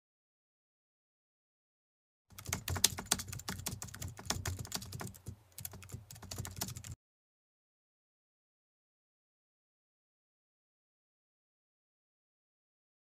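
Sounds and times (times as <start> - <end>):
computer keyboard typing: 2.3 - 7.0.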